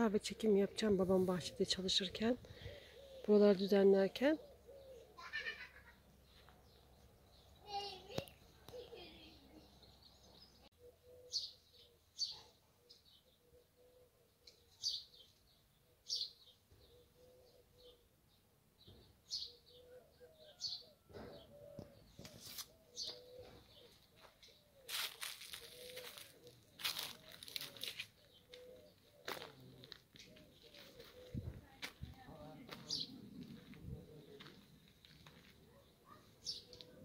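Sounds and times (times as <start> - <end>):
small birds chirping: 0.0 - 37.0
dove cooing: 2.4 - 3.4, 4.4 - 5.9, 10.7 - 12.0, 12.8 - 14.6, 16.7 - 18.1, 19.4 - 31.9, 32.9 - 37.0.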